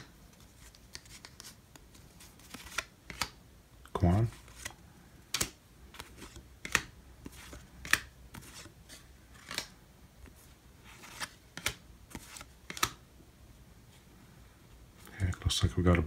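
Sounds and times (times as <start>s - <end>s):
cards flipping: 0.0s - 3.4s, 4.3s - 13.0s.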